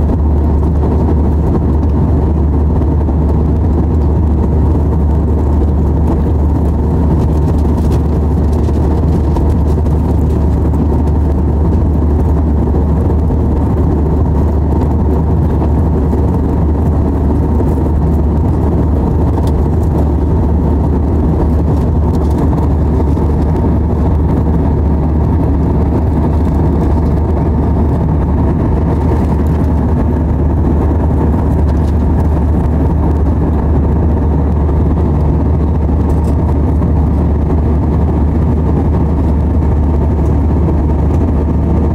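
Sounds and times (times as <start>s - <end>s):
jet engines droning: 0.0s - 41.9s.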